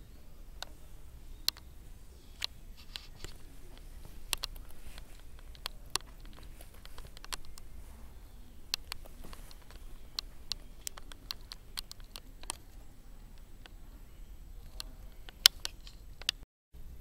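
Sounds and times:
faint low hum: 0:00.0 - 0:17.0
light clicks and taps: 0:00.6 - 0:13.9.

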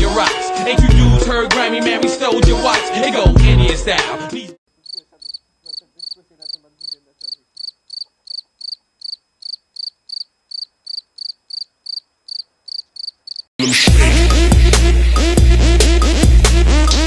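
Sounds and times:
cricket chirping: 0:04.7 - 0:13.5.

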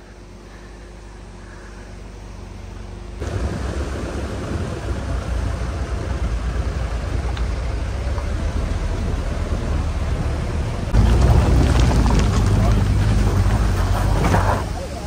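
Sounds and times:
car driving over rocky track: 0:03.3 - 0:15.0.

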